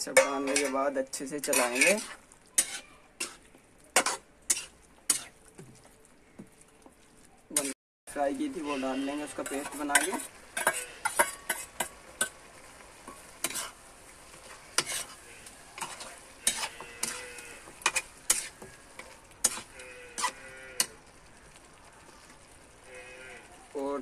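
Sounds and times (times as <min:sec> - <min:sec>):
metal spoon scraping a pan: 0:00.0 - 0:05.4, 0:07.5 - 0:07.8, 0:08.4 - 0:12.4, 0:13.0 - 0:21.0
light frying sizzle: 0:00.0 - 0:24.0.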